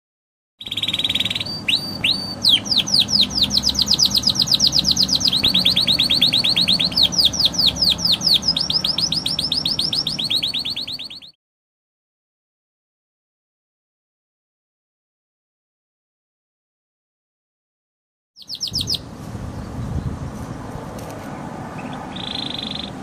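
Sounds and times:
canary singing: 0.6s - 11.4s, 18.4s - 19.8s, 21.7s - 23.0s.

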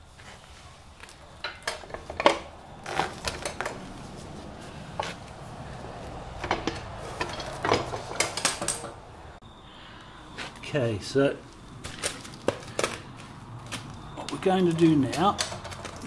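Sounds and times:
metallic clinks and knocks: 6.4s - 9.0s.

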